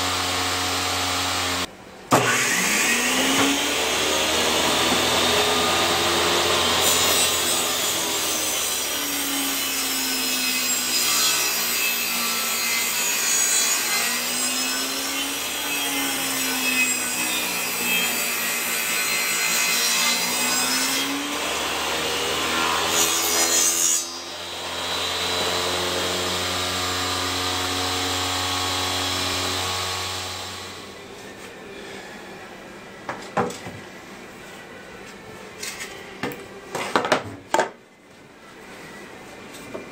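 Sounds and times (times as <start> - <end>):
saw motor humming: 0.0 - 12.3
table saw cutting wood: 0.0 - 31.1.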